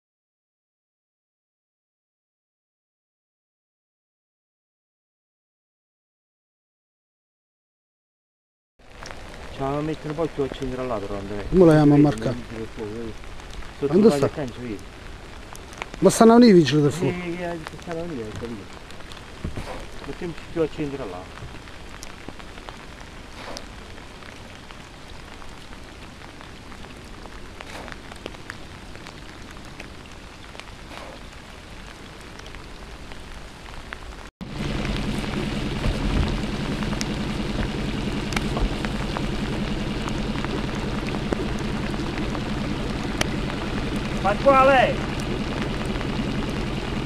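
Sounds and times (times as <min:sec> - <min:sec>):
rain hiss: 0:08.8 - 0:47.0
low hum: 0:34.4 - 0:47.0
drop-like ticks: 0:34.7 - 0:44.4.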